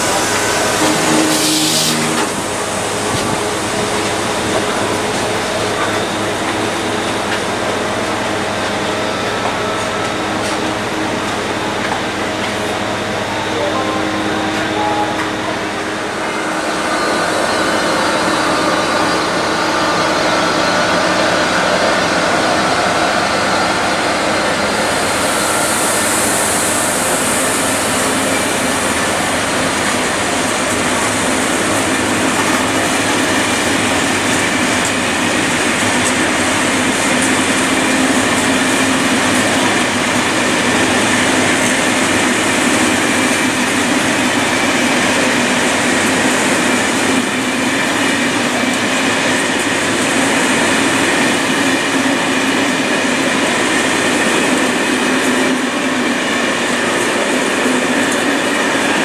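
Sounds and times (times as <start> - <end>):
train wheels on rails: 0.0 - 59.0
high hiss: 24.7 - 29.7.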